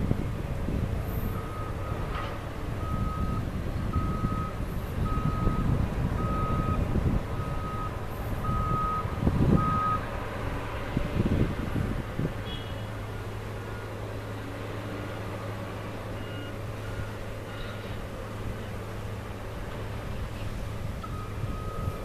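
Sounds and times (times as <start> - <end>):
reversing alarm beeping: 2.8 - 6.8, 7.4 - 10.0, 16.2 - 17.6, 21.0 - 22.0.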